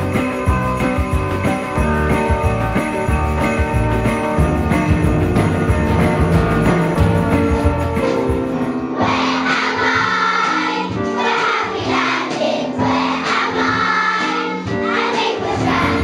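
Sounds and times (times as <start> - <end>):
instrumental accompaniment: 0.0 - 16.0
children singing in unison: 9.0 - 16.0.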